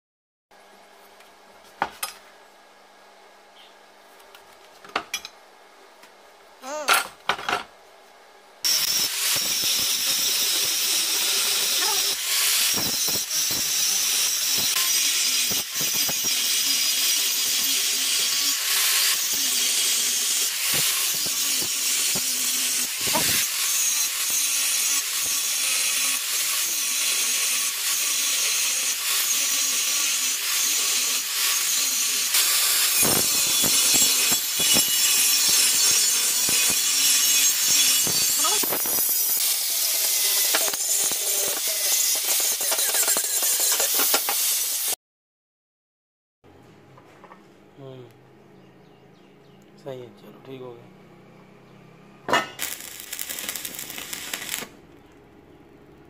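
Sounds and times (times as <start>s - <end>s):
angle grinder cutting steel: 8.7s - 45.0s, 52.3s - 54.7s.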